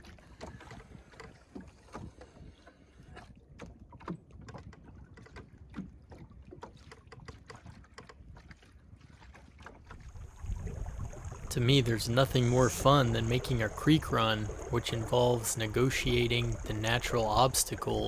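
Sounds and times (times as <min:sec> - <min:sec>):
water lapping against hull: 0:00.0 - 0:18.0
low wind rumble: 0:10.0 - 0:18.0.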